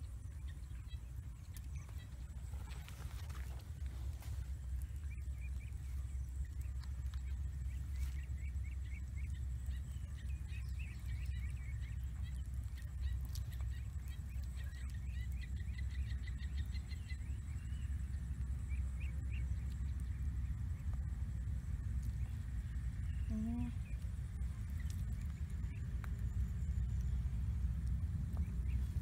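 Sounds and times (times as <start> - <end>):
low rumble: 0.0 - 29.0
small birds chirping: 0.0 - 29.0.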